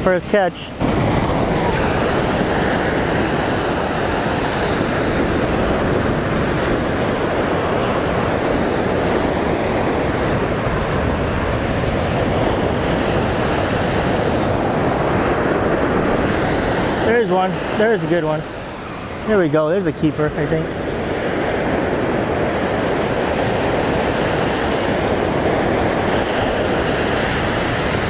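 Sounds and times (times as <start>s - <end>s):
ocean waves breaking on beach: 0.0s - 28.0s.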